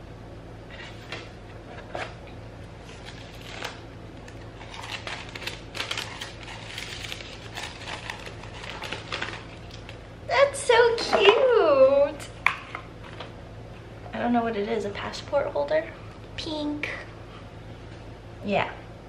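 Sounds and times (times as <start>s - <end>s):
paper and cardboard rustling: 2.8s - 9.9s.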